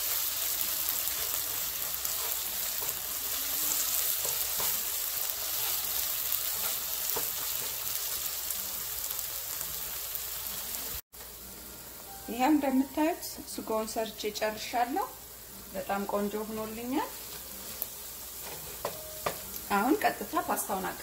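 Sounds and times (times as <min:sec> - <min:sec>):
onions sizzling in hot oil: 0:00.0 - 0:21.0
wooden spoon scraping pan: 0:01.1 - 0:04.8.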